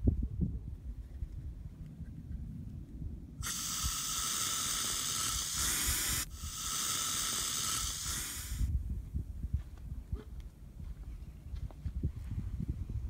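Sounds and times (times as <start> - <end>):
aerosol spray hissing: 3.4 - 8.7.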